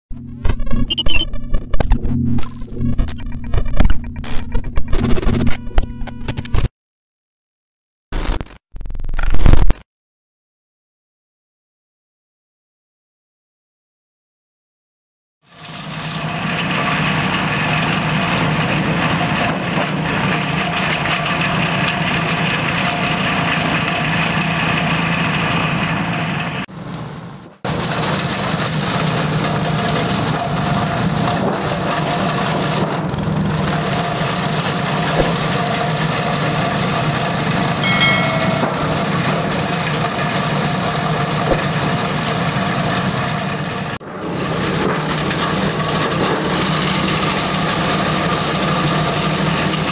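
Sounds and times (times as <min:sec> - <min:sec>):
small petrol engine running: 0:15.5 - 0:26.6, 0:27.7 - 0:49.9
plastic shredder chopping plastic: 0:31.2 - 0:36.6.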